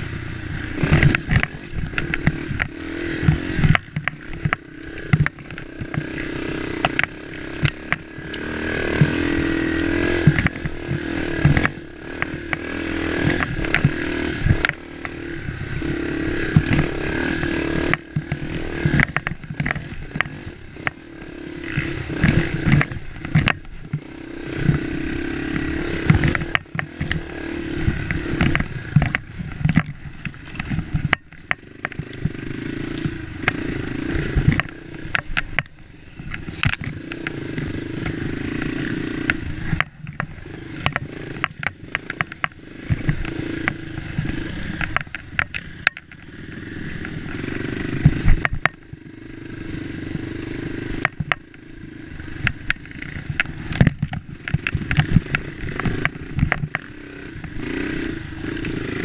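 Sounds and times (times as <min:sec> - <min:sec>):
bike rattling and knocking: 0:00.0 - 0:59.0
dirt bike engine: 0:00.0 - 0:59.0.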